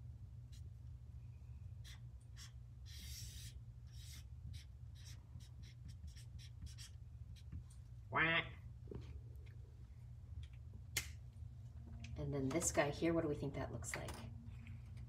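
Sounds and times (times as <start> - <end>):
low steady hum: 0.0 - 15.0
marker drawing on paper: 1.8 - 7.6.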